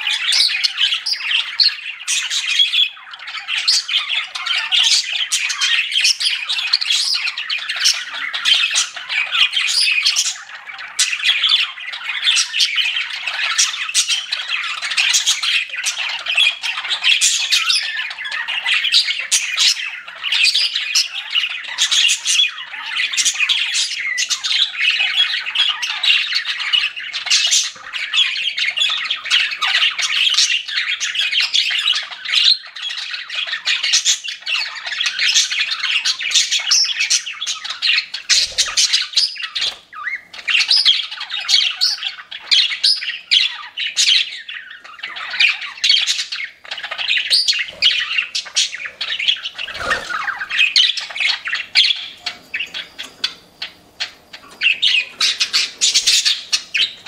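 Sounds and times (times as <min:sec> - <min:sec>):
budgerigars chirping: 0:00.0 - 0:57.0.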